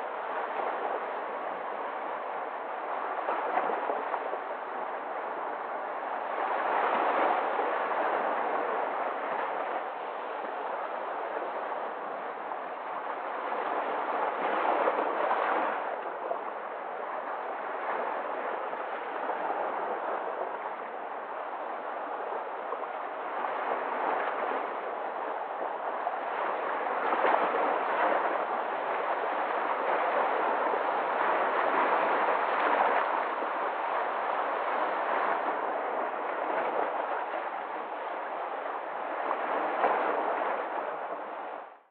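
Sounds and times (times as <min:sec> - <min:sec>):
waves breaking on rocks: 0:10.2 - 0:41.6.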